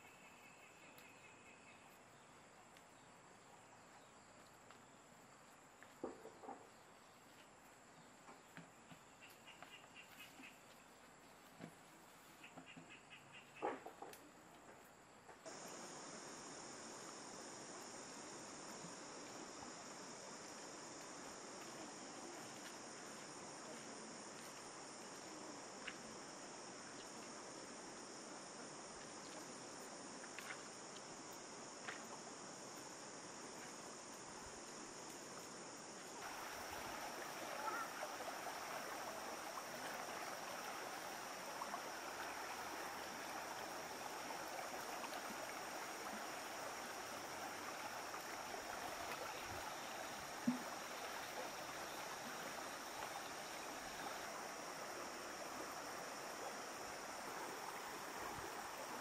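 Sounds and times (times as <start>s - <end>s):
insects chorus: 0.0s - 59.0s
flowing water: 15.4s - 59.0s.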